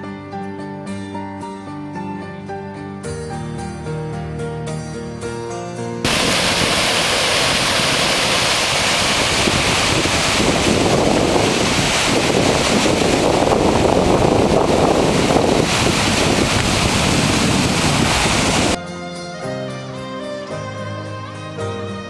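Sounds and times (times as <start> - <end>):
river water rushing: 6.1 - 18.8
wind buffeting microphone: 6.1 - 18.8.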